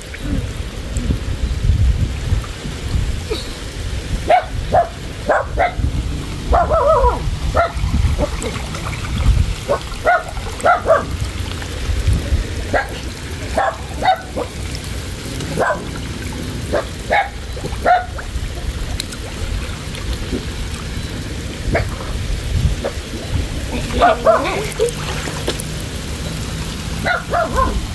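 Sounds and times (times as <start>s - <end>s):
dog barking: 4.3s - 5.8s, 6.5s - 8.4s, 9.7s - 11.2s, 12.7s - 13.0s, 13.6s - 14.6s, 15.6s - 15.9s, 16.7s - 18.2s, 24.0s - 24.7s, 27.0s - 27.9s
water sloshing around wading person: 6.3s - 27.9s.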